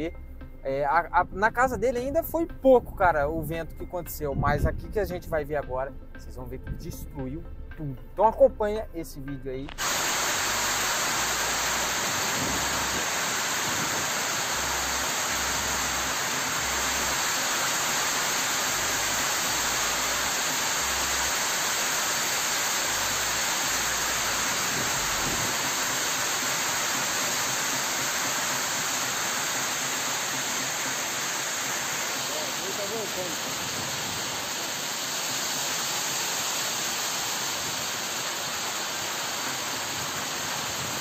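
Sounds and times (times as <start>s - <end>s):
wind buffeting microphone: 4.2s - 5.3s, 12.0s - 14.3s, 24.6s - 25.6s
torrential rain and wind: 9.7s - 41.0s.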